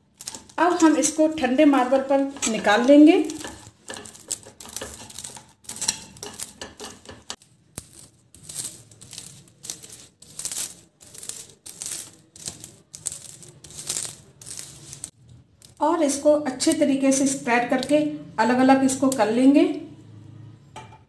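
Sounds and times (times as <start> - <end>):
popcorn rattling and crackling: 0.0 - 18.0
spatula scraping on marble: 0.2 - 15.8.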